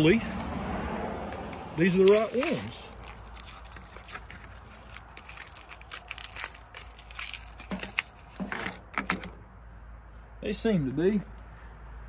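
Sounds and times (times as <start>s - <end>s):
blister packs crackling: 1.4s - 9.0s.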